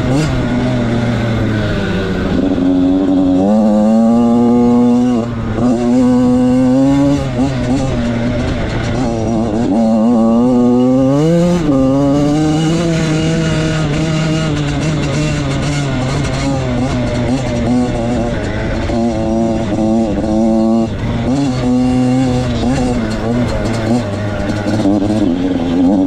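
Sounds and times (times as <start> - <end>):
dirt bike engine revving: 0.0 - 26.0.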